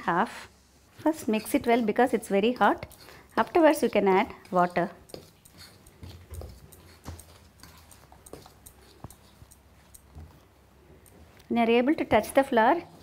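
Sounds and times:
metal spoon scraping metal plate: 2.8s - 8.9s.

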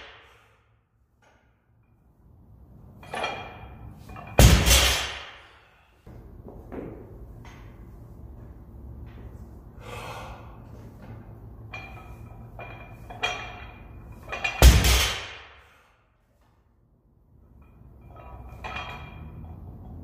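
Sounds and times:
low steady hum: 0.2s - 20.0s
person breathing sharply: 9.8s - 10.7s.

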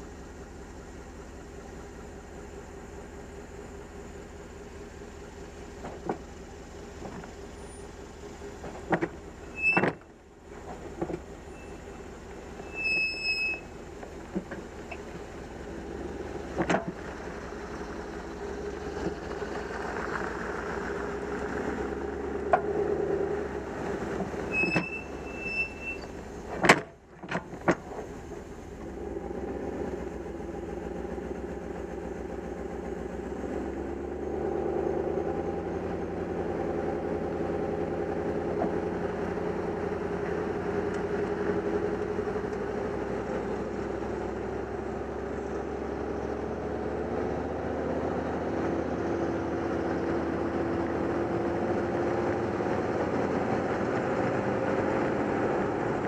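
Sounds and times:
road and engine drone: 0.0s - 56.0s
high squeals from hitch: 9.4s - 10.0s, 11.5s - 13.8s, 24.4s - 26.2s.

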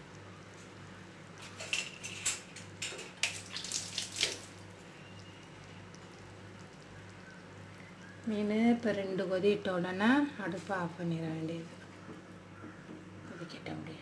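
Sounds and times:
thick curry boiling and popping: 0.0s - 8.3s
steady low hum: 4.4s - 14.0s.

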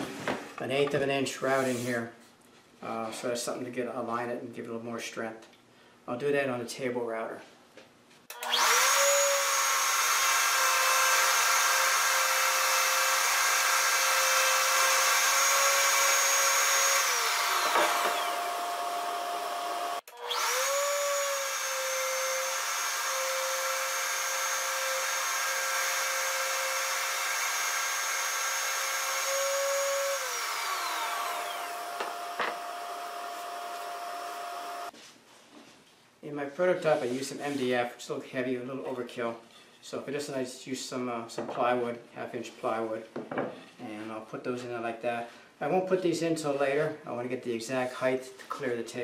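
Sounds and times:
router whining: 8.3s - 34.9s.

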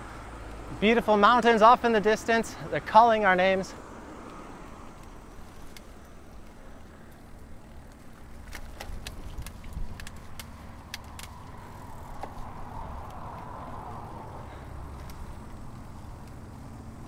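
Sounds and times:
bike tyre noise: 0.0s - 17.0s
wind rumble: 3.8s - 17.0s
metallic clicks from bike: 4.2s - 12.4s, 14.9s - 16.8s.

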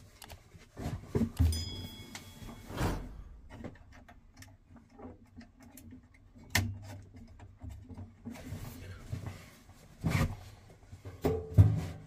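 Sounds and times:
short high ring: 1.5s - 3.3s.

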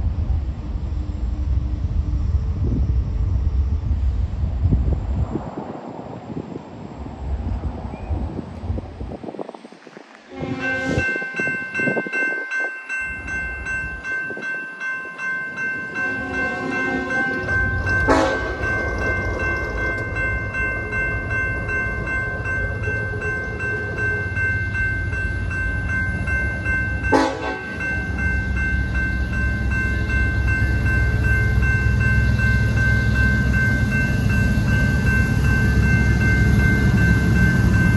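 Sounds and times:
diesel locomotive rumble: 0.0s - 5.5s, 15.1s - 37.9s
crossing bell ringing: 10.3s - 37.9s.

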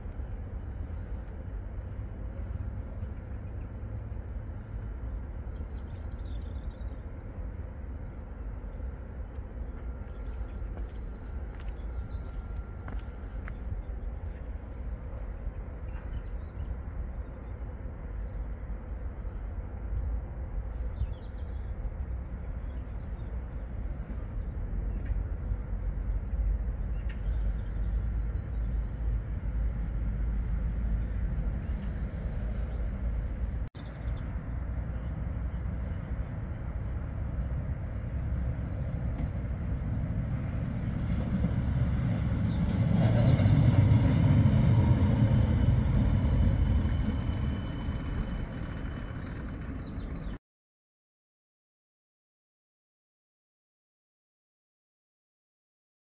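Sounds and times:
electric tram running: 0.0s - 21.9s, 23.3s - 50.4s
low outdoor rumble: 0.0s - 50.4s
birds chirping: 2.9s - 18.4s, 42.0s - 50.4s.

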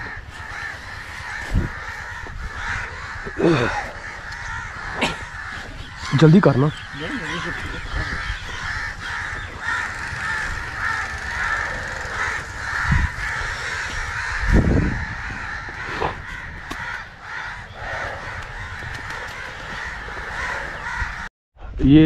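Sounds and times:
crows cawing: 0.0s - 21.3s.

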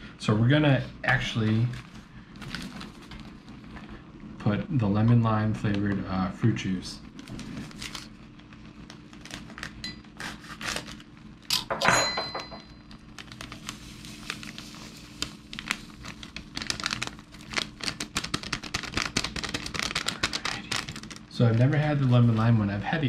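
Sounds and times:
foil pouch crinkling: 1.3s - 4.0s, 7.2s - 11.1s, 12.9s - 22.8s
pouch tearing rasp: 9.2s - 11.0s.

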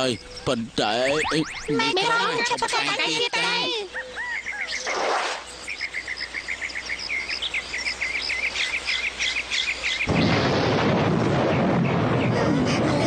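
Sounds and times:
cartoon bird chirps: 1.0s - 2.4s
loud storm noise: 10.1s - 13.0s.

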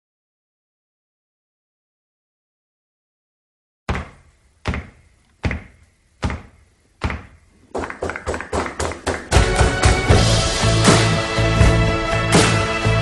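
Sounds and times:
song music: 7.8s - 13.0s
heavy drum hits: 8.6s - 11.9s.

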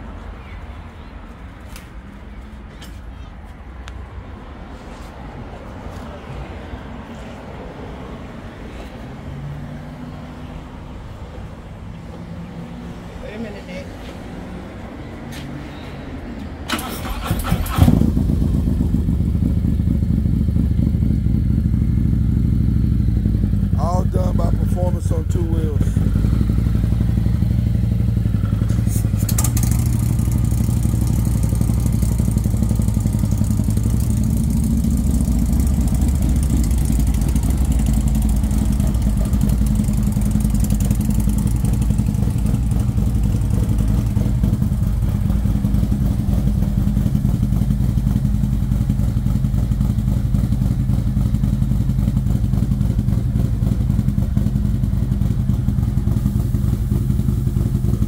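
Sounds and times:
motorcycle engine idling: 16.8s - 58.0s.

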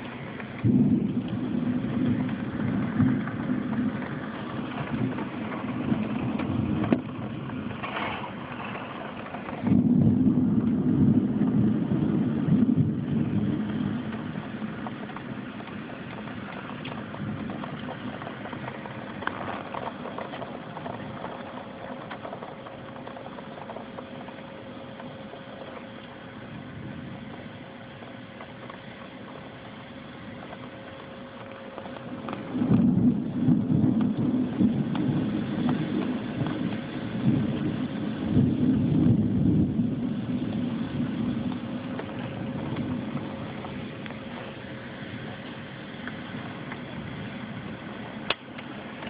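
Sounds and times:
rain: 0.0s - 49.0s
storm winds: 0.0s - 49.0s.

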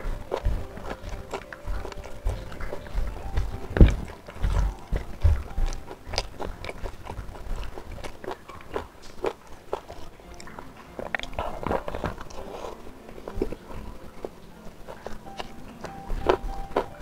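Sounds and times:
fingers working rice and meat: 0.0s - 17.0s
person chewing and crunching food: 0.0s - 17.0s.

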